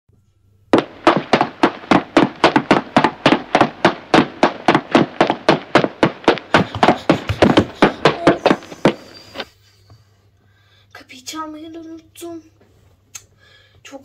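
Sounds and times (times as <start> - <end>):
sharp taps: 0.8 - 9.5.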